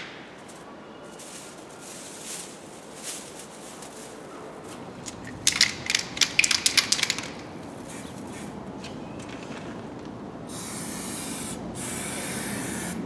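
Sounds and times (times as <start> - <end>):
aerosol can ball rattling: 5.0 - 7.5.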